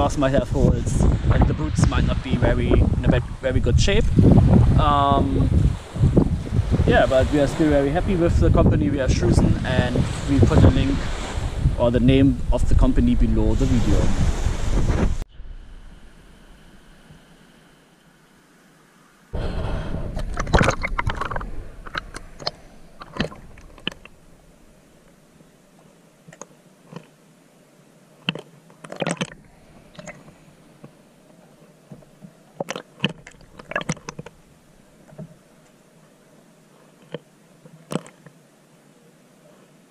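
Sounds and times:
water rushing and splashing: 0.0 - 39.8
sharp clicks and knocks: 20.2 - 24.1.

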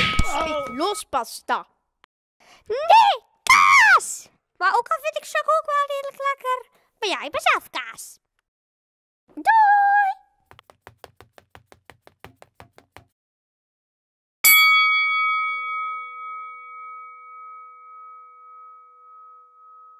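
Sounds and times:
boxing ring bell ringing: 0.0 - 1.0, 14.4 - 19.9.

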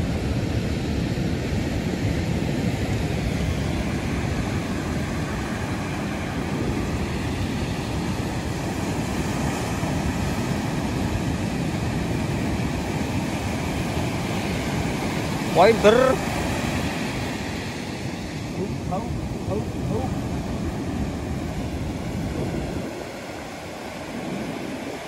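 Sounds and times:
sea surf breaking: 0.0 - 25.0
wind rumbling on microphone: 0.0 - 25.0.

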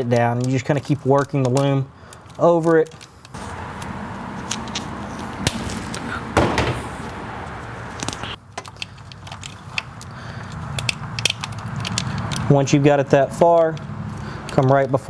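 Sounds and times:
plastic loom rustling and clicking: 0.0 - 3.1
steady background hum: 1.8 - 12.5.

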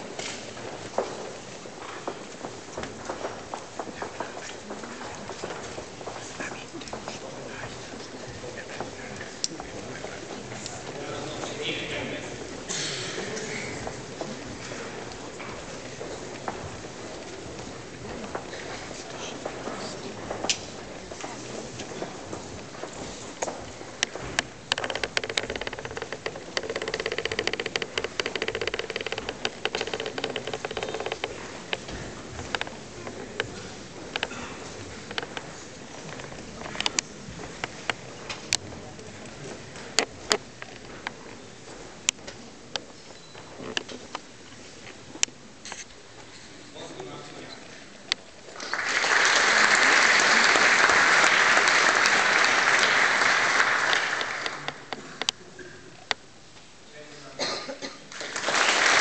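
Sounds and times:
audience applauding: 48.5 - 54.9, 58.1 - 59.0.

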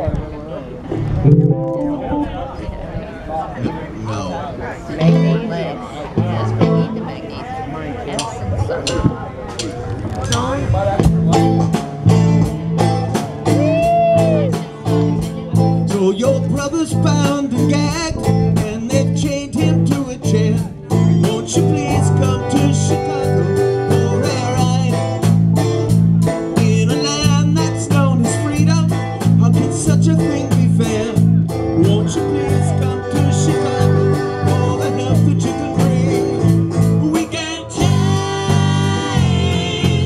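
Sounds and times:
bass guitar: 0.0 - 40.0
keyboard: 0.0 - 40.0
electric guitars: 0.8 - 4.2, 4.8 - 40.0
drum kit beat: 8.2 - 40.0.

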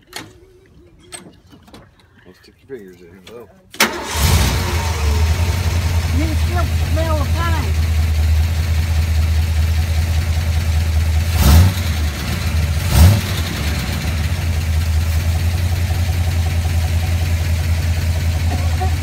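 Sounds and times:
car engine idling and revving: 3.9 - 19.0.

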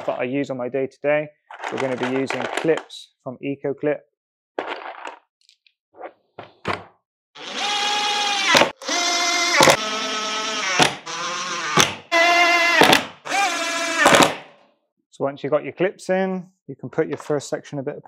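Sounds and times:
drill motor whine: 7.4 - 14.2
sharp drill clicks: 7.4 - 14.4.

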